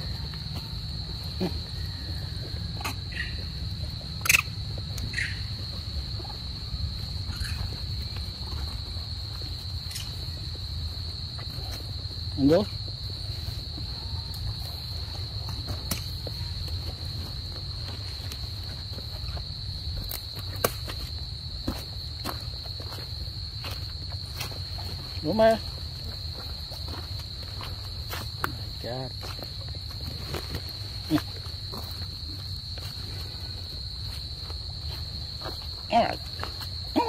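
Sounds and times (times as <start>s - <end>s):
high-pitched insect drone: 0.0s - 19.6s
person speaking a word: 35.9s - 36.2s.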